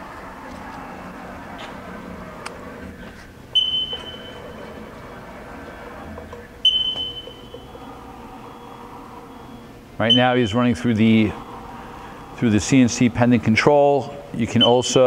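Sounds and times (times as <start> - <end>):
faint machine hum: 0.0 - 15.0
high-pitched keypad beeps: 6.6 - 7.7.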